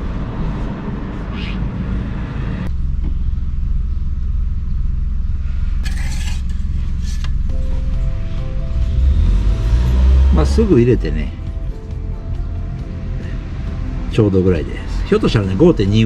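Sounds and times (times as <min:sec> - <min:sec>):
steady low rumble: 0:00.0 - 0:16.0
dipstick scraping: 0:05.8 - 0:07.5.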